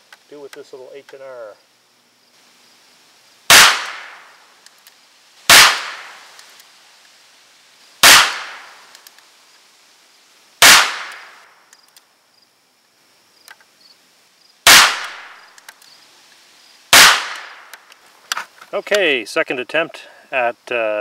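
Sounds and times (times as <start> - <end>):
revolver shots: 3.5 - 4.3.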